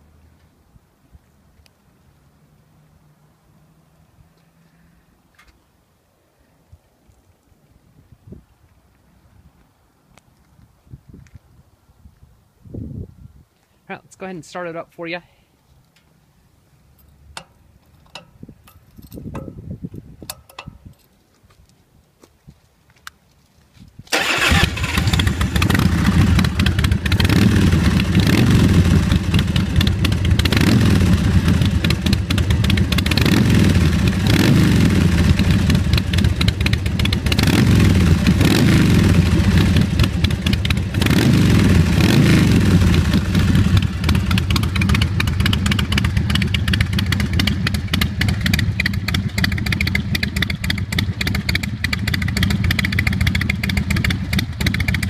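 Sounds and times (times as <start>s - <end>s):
motorcycle engine revving and idling: 24.2s - 55.0s.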